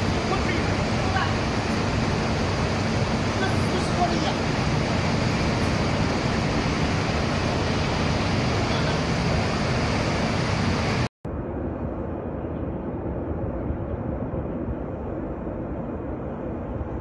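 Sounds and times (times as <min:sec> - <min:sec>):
large fire roaring: 0:00.0 - 0:12.1.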